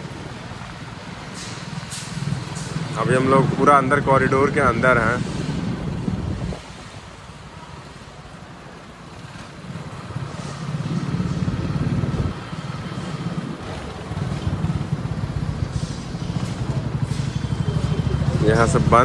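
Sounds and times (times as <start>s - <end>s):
motorcycle engine running: 9.2s - 19.0s.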